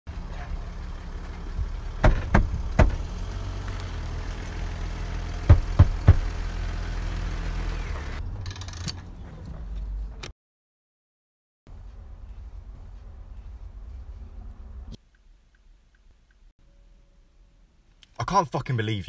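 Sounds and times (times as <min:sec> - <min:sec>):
low engine rumble: 0:00.1 - 0:08.5, 0:11.7 - 0:15.0.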